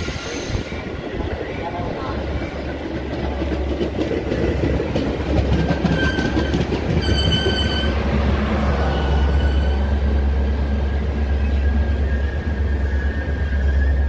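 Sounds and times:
train wheels clattering over rails: 0:00.0 - 0:09.6.

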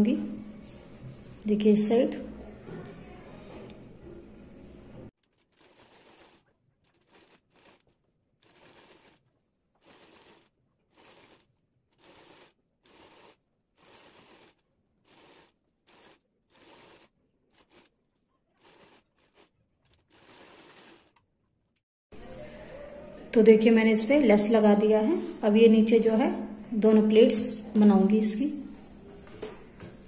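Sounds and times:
sewing machine stitching: 0:05.2 - 0:21.2.

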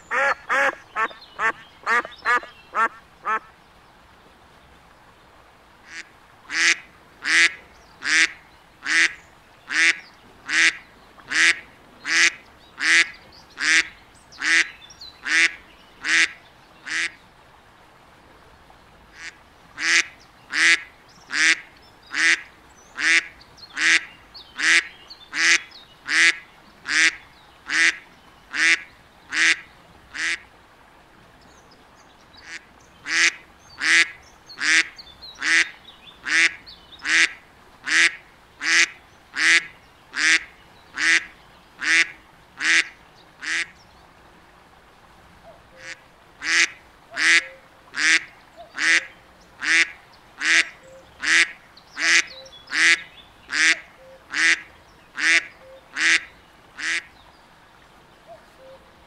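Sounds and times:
duck quacking: 0:00.1 - 0:03.5, 0:05.9 - 0:16.3, 0:30.2 - 0:30.4, 0:32.4 - 0:40.4, 0:45.8 - 0:57.1.

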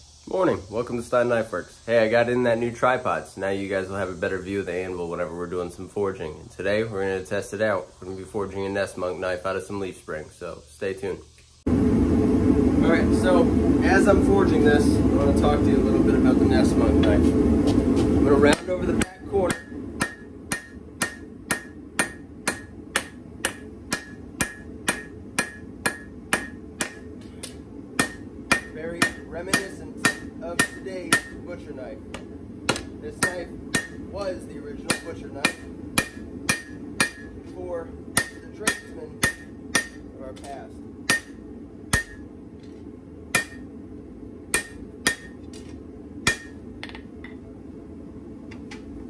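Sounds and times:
steady low noise: 0:00.0 - 0:49.0
hammer striking steel on anvil: 0:18.5 - 0:31.5, 0:32.1 - 0:37.4, 0:38.1 - 0:42.3, 0:43.3 - 0:43.7, 0:44.5 - 0:45.4, 0:46.2 - 0:47.1.

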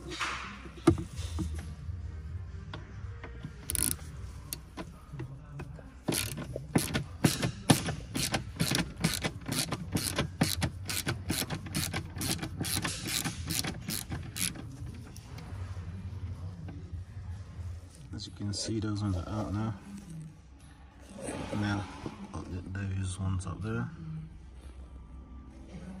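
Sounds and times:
hand ratchet clicking: 0:03.6 - 0:04.9, 0:06.1 - 0:14.6.

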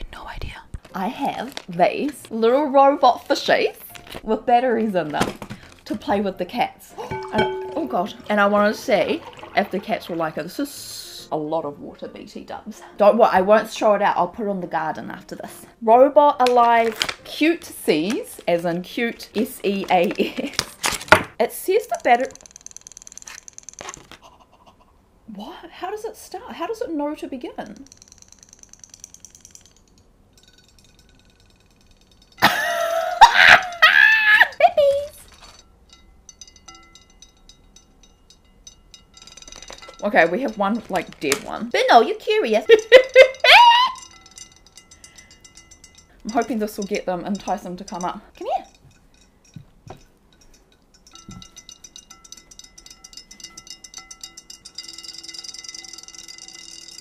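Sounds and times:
toy motors clicking rapidly: 0:21.9 - 0:24.2, 0:27.6 - 0:30.0
woman squealing: 0:32.9 - 0:35.1, 0:43.2 - 0:44.1.

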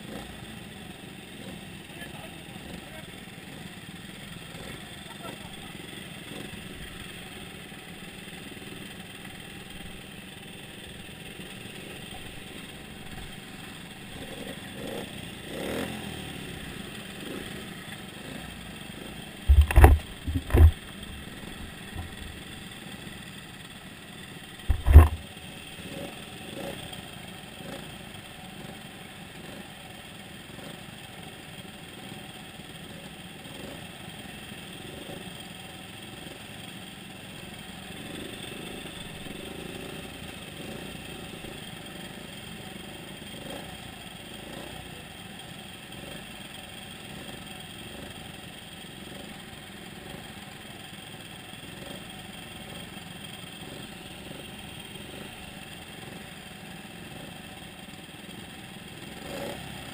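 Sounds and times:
motorcycles idling: 0:00.0 - 0:59.9
loud sharp thumps: 0:19.5 - 0:21.0, 0:24.7 - 0:25.2.

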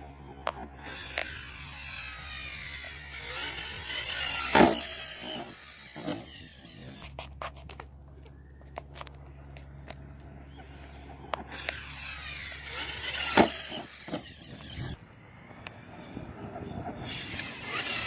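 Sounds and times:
electric toy truck motor whining: 0:00.0 - 0:18.0
toy truck landing thump: 0:03.8 - 0:06.3, 0:12.7 - 0:15.0.

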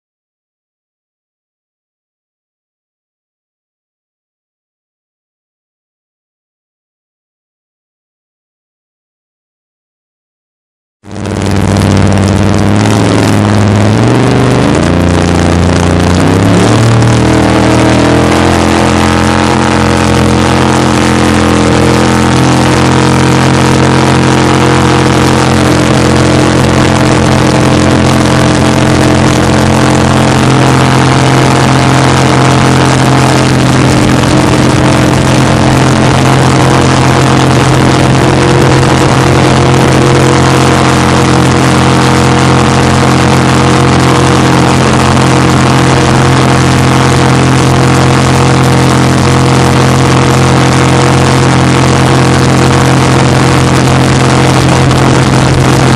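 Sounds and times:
jet boat engine running hard: 0:11.1 - 0:55.9
rush of wind and water: 0:11.2 - 0:55.9.

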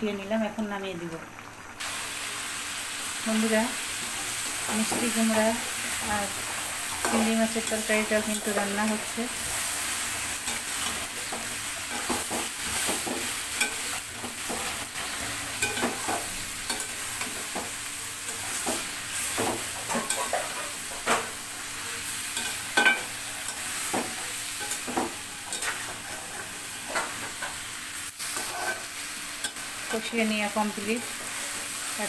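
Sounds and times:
food sizzling in a pan: 0:00.0 - 0:32.0
metal spatula scraping and clinking: 0:28.3 - 0:29.6.

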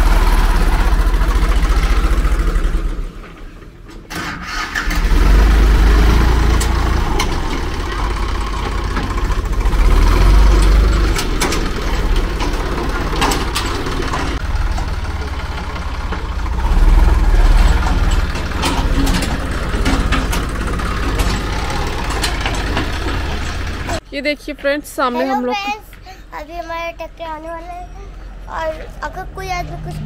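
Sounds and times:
tractor engine rumbling: 0:00.0 - 0:30.0
sharp clicks and knocks: 0:06.4 - 0:24.0.

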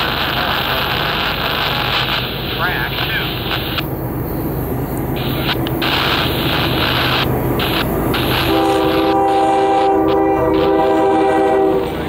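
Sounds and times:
locomotive engines rumbling: 0:00.0 - 0:12.0
locomotive air horn: 0:05.2 - 0:12.0.

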